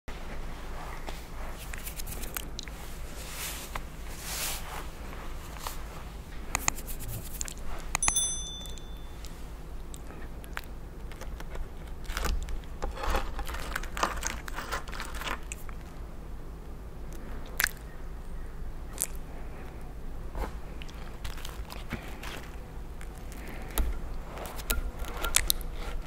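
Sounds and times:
bright ringing tone: 0:08.0 - 0:09.3
crunchy toasted crust handled: 0:10.3 - 0:16.1, 0:20.3 - 0:26.0.

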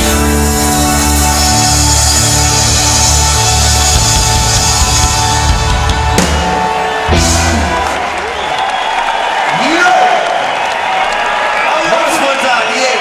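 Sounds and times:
live reggae band: 0:00.0 - 0:08.5.

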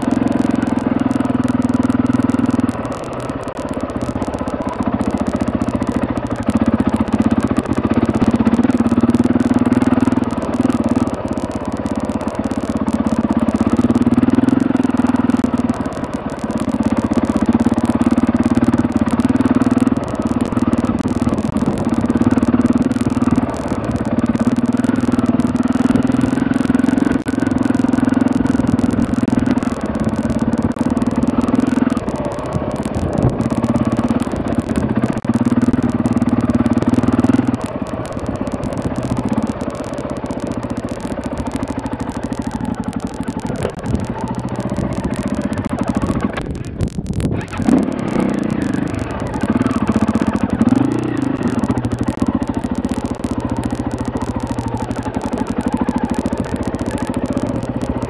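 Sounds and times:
clatter over stones: 0:00.0 - 0:58.0
motorbike engine revving: 0:00.0 - 0:58.0.

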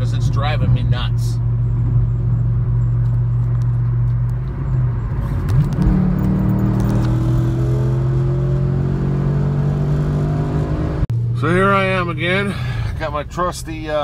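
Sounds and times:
road noise inside car: 0:00.0 - 0:14.0
car engine accelerating: 0:01.4 - 0:12.6.

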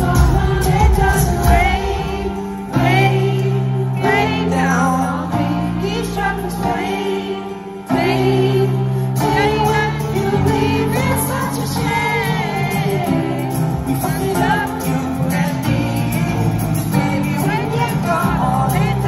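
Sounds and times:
live pop-rock band playing: 0:00.0 - 0:19.0
person singing: 0:00.0 - 0:19.0.

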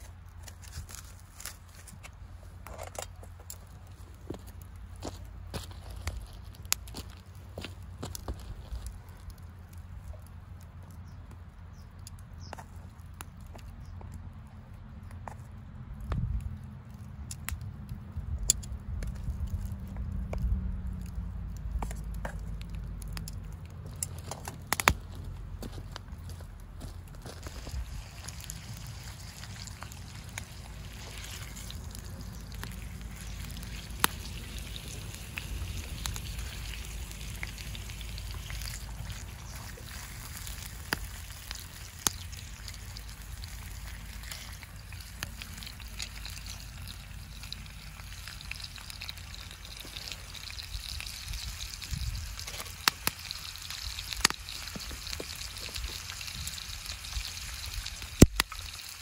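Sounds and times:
low steady rumble: 0:00.0 - 0:58.6
food frying: 0:27.3 - 0:59.0.

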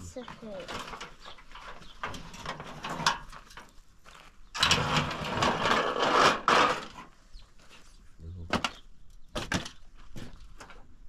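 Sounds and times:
sheet metal scraping on dirt: 0:00.0 - 0:08.0.

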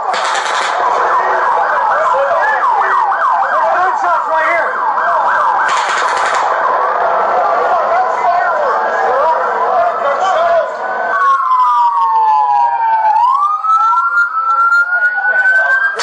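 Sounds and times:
emergency sirens wailing: 0:00.0 - 0:16.0.

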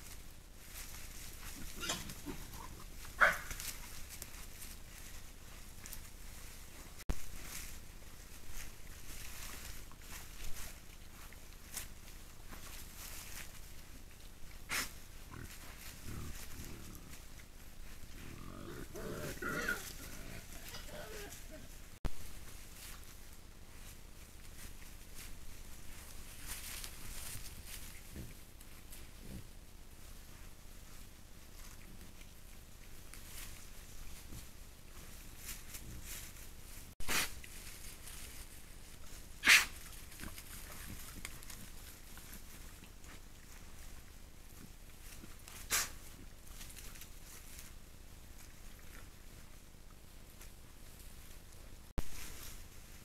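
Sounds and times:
rustling in dry leaves: 0:00.0 - 0:53.0
wild boar grunting: 0:01.4 - 0:03.6, 0:14.7 - 0:22.0.

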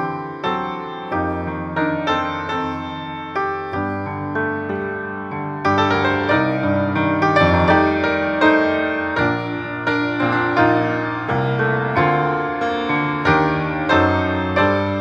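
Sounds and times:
slow piano piece: 0:00.0 - 0:15.0.

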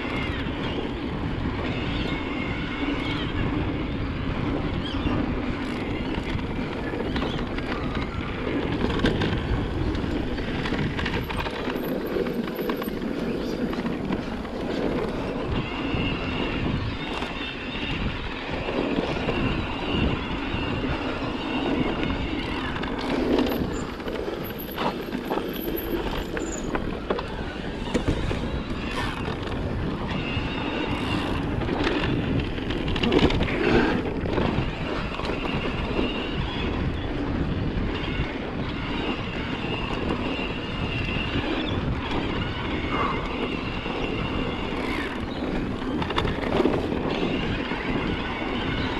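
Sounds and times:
bike tyres on dirt: 0:00.0 - 0:48.9
bike rattling and knocking: 0:04.8 - 0:16.1, 0:21.5 - 0:36.2.

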